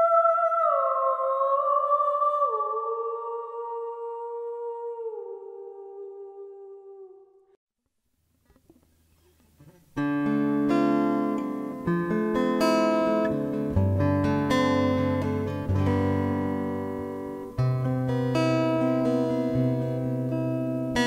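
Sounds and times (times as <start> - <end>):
plucked string instrument: 8.3 - 21.0.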